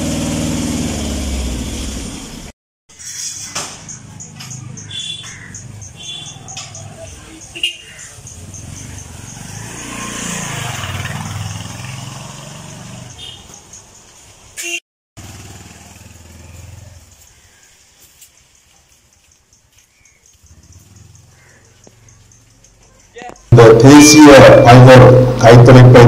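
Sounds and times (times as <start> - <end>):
vehicle engine passing by: 8.2 - 13.2, 15.2 - 17.3, 20.5 - 22.5
quiet outdoor ambience: 15.4 - 26.0.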